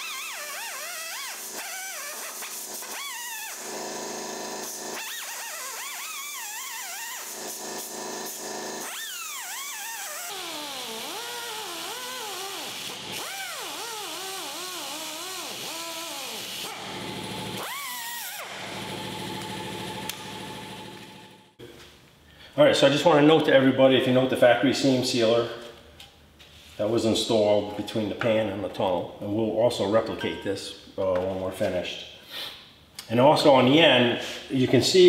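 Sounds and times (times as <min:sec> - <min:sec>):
cutoff wheel cutting metal: 0:00.0 - 0:21.4.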